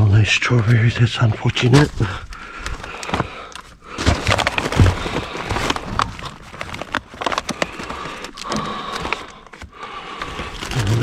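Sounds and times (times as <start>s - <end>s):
rummaging through plastic packaging: 0.8s - 11.0s.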